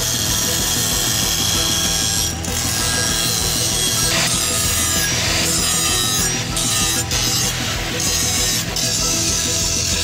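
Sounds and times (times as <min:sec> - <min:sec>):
angle grinder grinding steel: 0:00.0 - 0:10.0
background music: 0:00.0 - 0:10.0.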